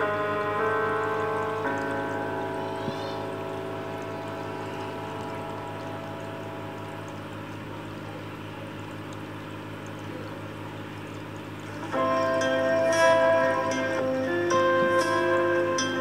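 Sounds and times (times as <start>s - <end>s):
background music: 0.0s - 6.7s, 11.8s - 16.0s
low steady hum: 0.0s - 16.0s
running water pouring: 0.0s - 16.0s.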